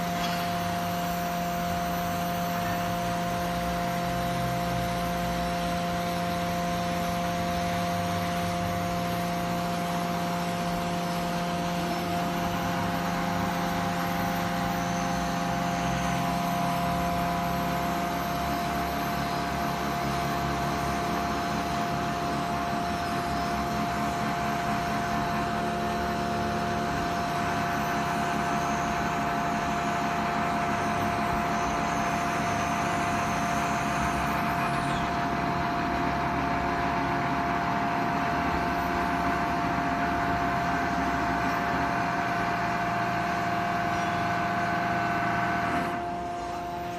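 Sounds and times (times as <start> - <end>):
heavy machinery drone: 0.0 - 46.9
high whine: 0.0 - 46.9.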